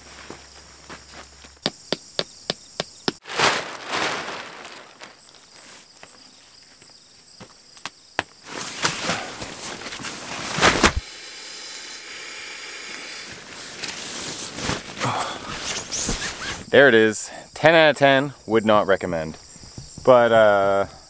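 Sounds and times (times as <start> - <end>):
insects shrilling: 1.7 - 17.1
plastic tarp rustling: 3.2 - 6.1, 8.4 - 11.0, 13.3 - 16.7.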